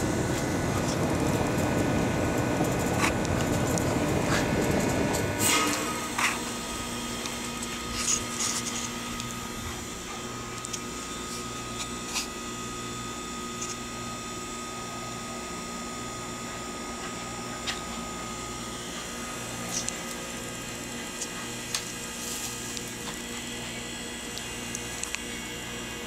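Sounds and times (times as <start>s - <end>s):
low pulsing drone: 0.0s - 26.0s
mechanical hum: 0.0s - 26.0s.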